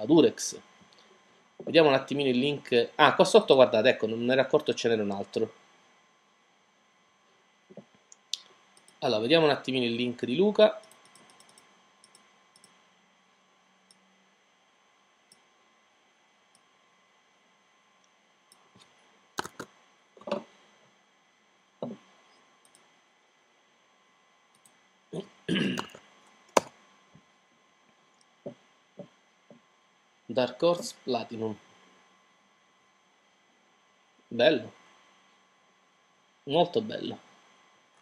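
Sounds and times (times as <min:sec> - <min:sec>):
mouse and keyboard clicks: 0:19.4 - 0:20.4.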